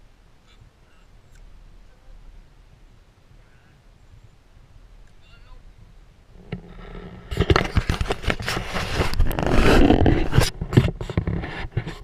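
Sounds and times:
camera handling on microphone: 6.5 - 12.0.

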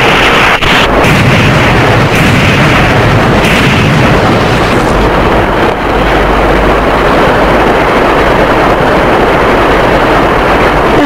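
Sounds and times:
explosion: 0.0 - 11.0
motorboat engine and water rush: 0.0 - 11.0.

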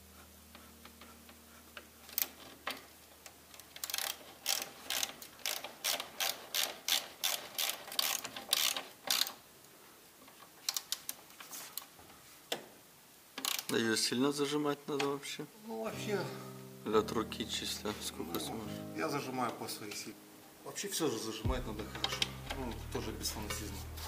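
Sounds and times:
ratchet wrench clicking: 3.8 - 9.4, 13.4 - 13.7.

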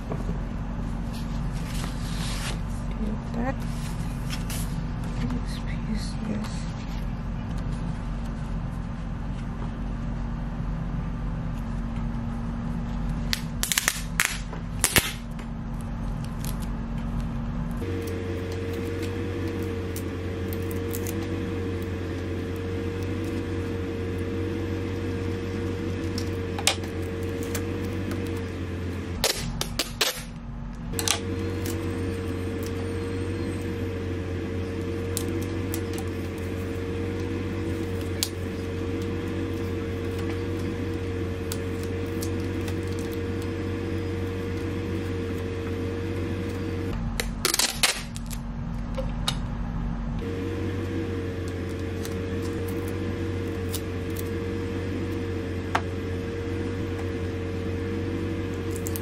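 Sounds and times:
steady background hum: 0.0 - 59.0
adhesive tape ripping: 13.3 - 15.3, 18.0 - 24.3, 29.2 - 30.3, 51.5 - 54.4, 58.6 - 59.0.

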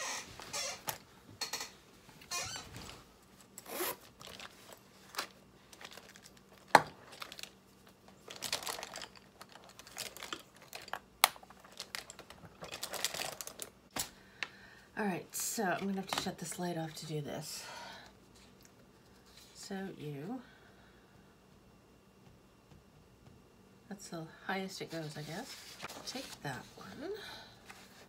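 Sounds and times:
cloth and pencils rustling: 2.0 - 14.1, 24.7 - 28.0
zipper pulled open: 3.6 - 4.4.

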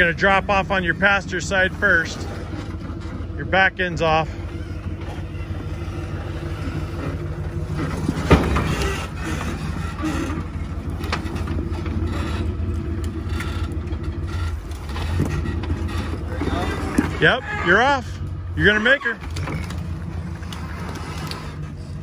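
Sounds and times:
vehicle engine idling: 0.0 - 22.0
vehicle knocking onto rocks: 4.6 - 17.3.

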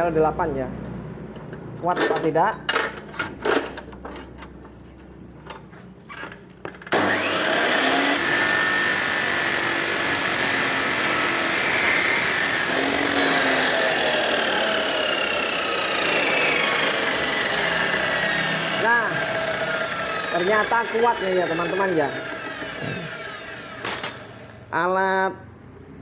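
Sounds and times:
cut-off saw grinding steel: 6.9 - 24.6.

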